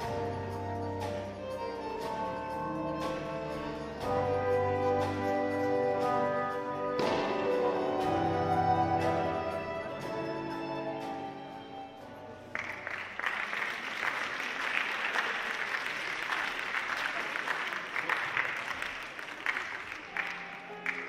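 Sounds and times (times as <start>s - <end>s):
tango music: 0.0s - 13.2s, 19.8s - 21.0s
audience applauding: 12.5s - 21.0s.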